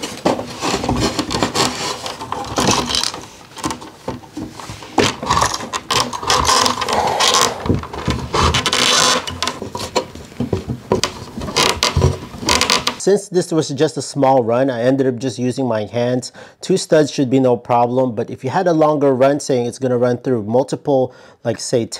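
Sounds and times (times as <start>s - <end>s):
cable scraping against wood: 0.0s - 13.0s.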